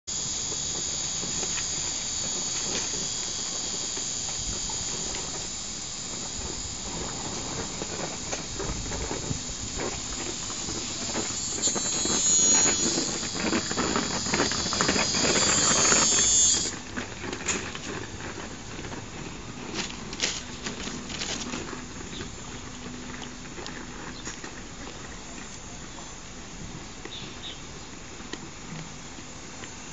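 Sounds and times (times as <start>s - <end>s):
cicadas droning: 0.0s - 29.9s
goat chewing paper: 16.8s - 24.4s.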